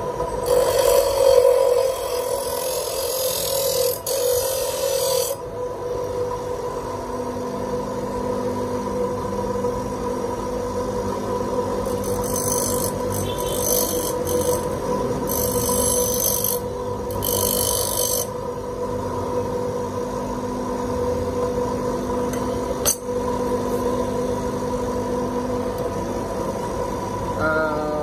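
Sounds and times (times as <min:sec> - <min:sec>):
bench grinder humming: 0:00.0 - 0:05.6, 0:10.9 - 0:18.9.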